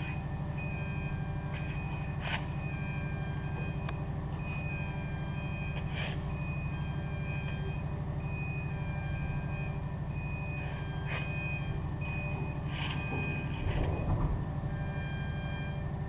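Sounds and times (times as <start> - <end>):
electronic warning beeps: 0.0 - 16.0
ship engines throbbing: 0.0 - 16.0
loud rumble: 9.0 - 16.0.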